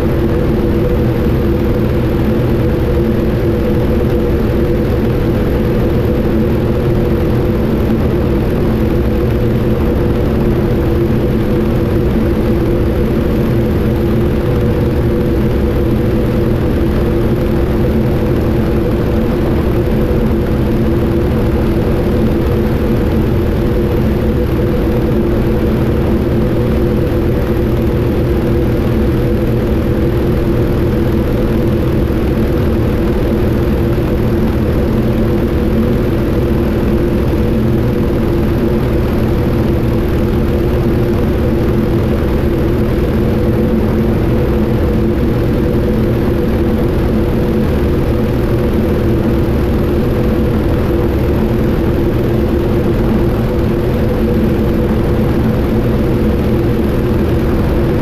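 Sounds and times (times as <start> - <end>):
radial engine and propeller droning: 0.0 - 58.0.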